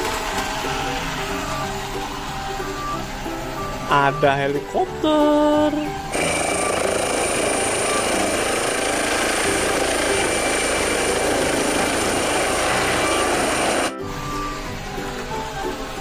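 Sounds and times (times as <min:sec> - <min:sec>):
high turbine whine: 0:00.0 - 0:04.2, 0:05.9 - 0:16.0
helicopter rotors rushing: 0:06.1 - 0:14.0.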